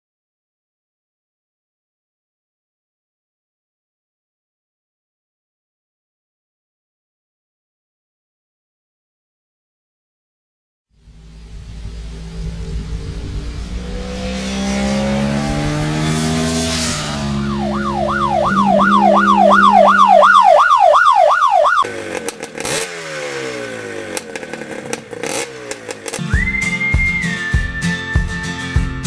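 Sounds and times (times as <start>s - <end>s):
warbling siren-like tone: 11.0s - 21.9s
motorcycle engine revving: 11.0s - 27.6s
steady high beep: 17.5s - 21.8s.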